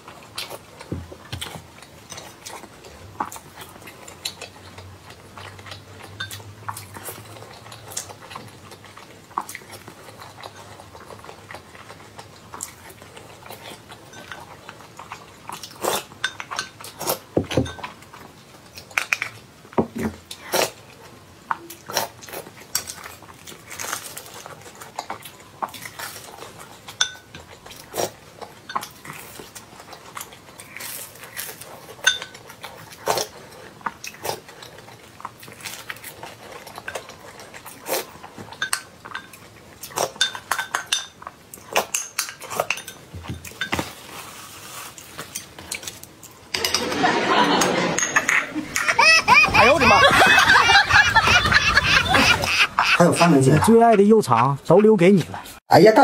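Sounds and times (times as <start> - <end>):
chewing: 0.0 - 46.9.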